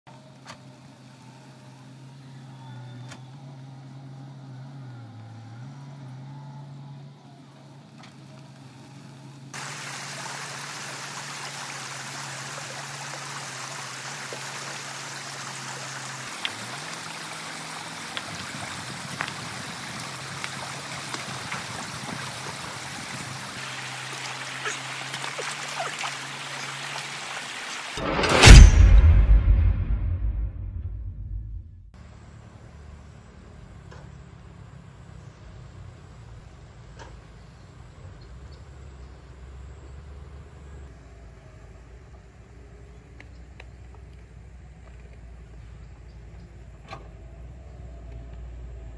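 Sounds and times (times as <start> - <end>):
low engine hum: 0.1 - 48.9
stream rushing over stones: 9.5 - 28.6
small water splashes: 9.6 - 28.0.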